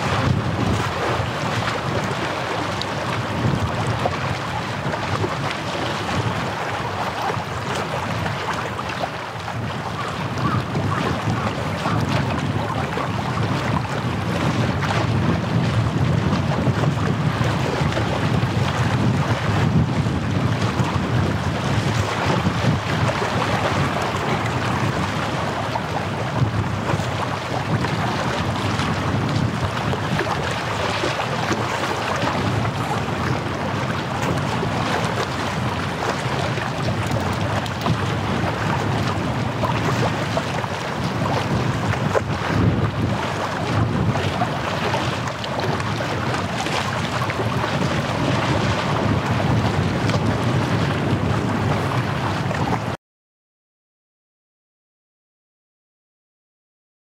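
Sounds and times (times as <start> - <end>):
small waves washing: 0.0 - 52.9
wind buffeting microphone: 0.0 - 53.0.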